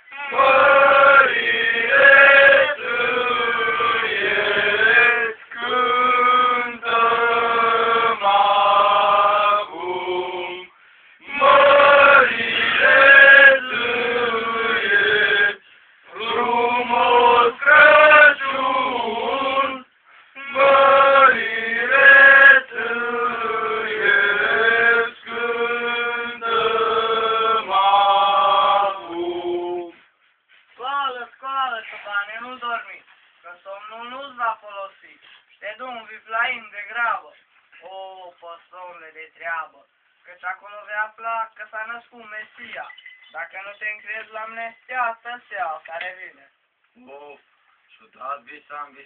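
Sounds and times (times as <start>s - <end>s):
group singing a carol: 0.0s - 30.1s.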